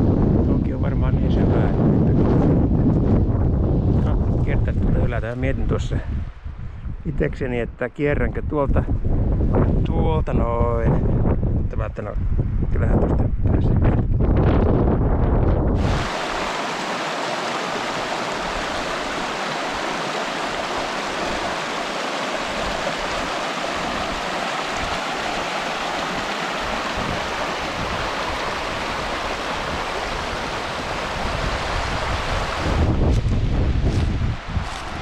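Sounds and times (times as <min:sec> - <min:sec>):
stream rushing: 0:15.8 - 0:35.0.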